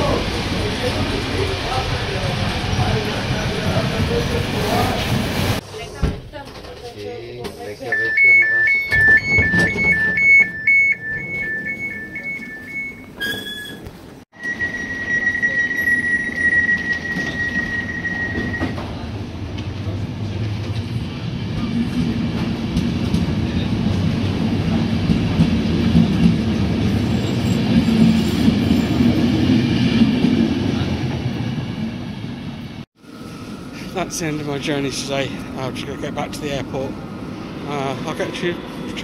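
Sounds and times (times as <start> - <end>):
train wheels rumbling on track: 0.0 - 7.6, 13.3 - 39.0
train wheels squealing: 11.0 - 13.8, 14.4 - 18.9.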